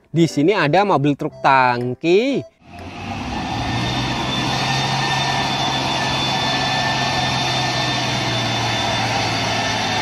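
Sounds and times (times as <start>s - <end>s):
diesel truck engine running: 2.6s - 10.0s.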